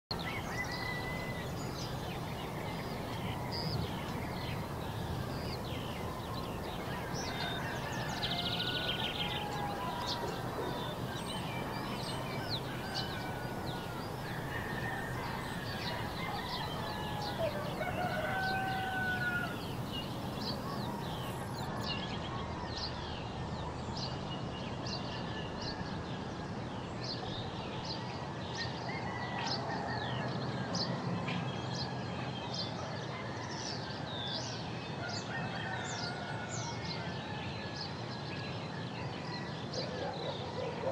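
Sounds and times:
birds chirping and calling: 0.1 - 21.9
steady background hiss: 0.2 - 21.8.

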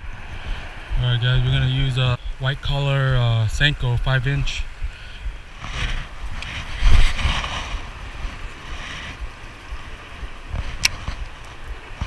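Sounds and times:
wind rumbling on microphone: 0.0 - 12.0
fishing rod swishing: 5.6 - 9.2.

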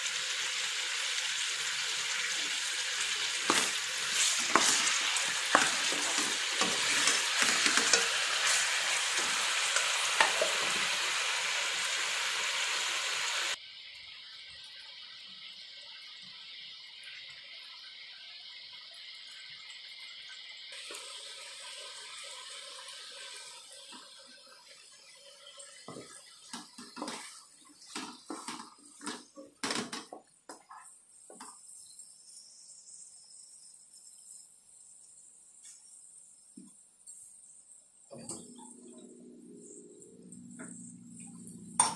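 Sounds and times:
meat sizzling in hot oil: 0.0 - 29.8.

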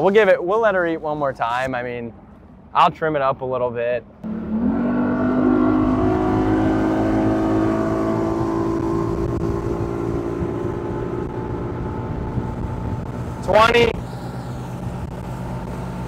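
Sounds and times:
outboard motor accelerating: 4.2 - 16.0.

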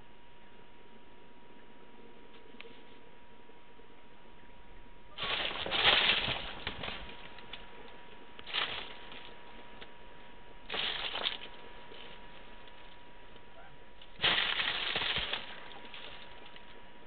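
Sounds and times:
cat tunnel crackling: 5.1 - 9.8, 10.7 - 13.0, 14.1 - 16.8.

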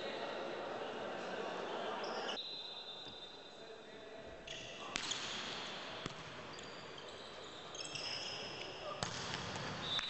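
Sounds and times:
crowd noise in a hall: 0.0 - 10.0
volleyball being hit: 9.0 - 9.8.

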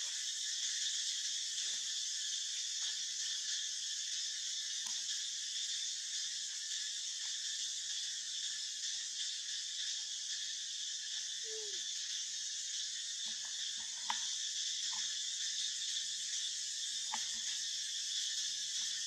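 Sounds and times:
high-pitched insect chorus: 0.0 - 19.0
faint clicks and taps: 17.1 - 17.5.

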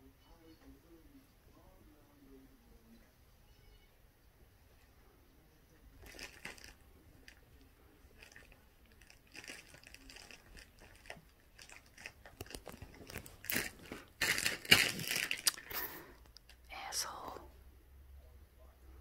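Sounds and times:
camera rustling and rubbing: 11.7 - 15.3.

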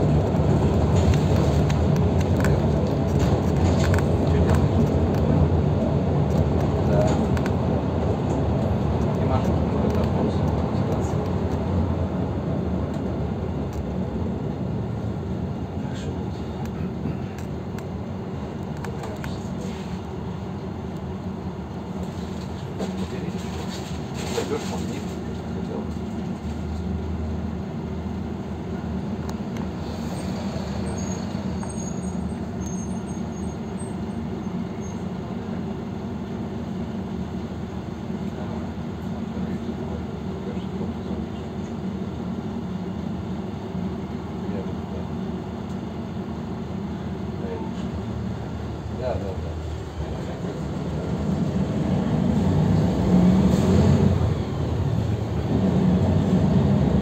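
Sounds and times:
bus engine rumble: 0.0 - 57.0
road noise: 0.0 - 57.0.

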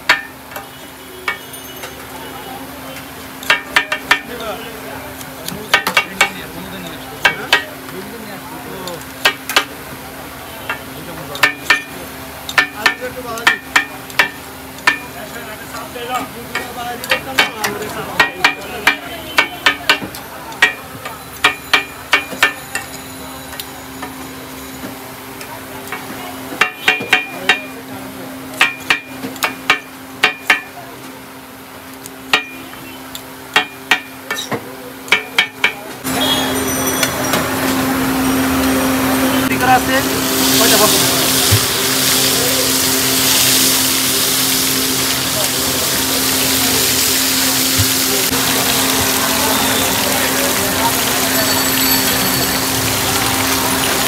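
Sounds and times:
metal spatula clanking on griddle: 0.0 - 2.1, 3.4 - 4.4, 10.7 - 24.1, 32.3 - 32.6, 33.5 - 37.5
busy street noise: 0.0 - 54.0.

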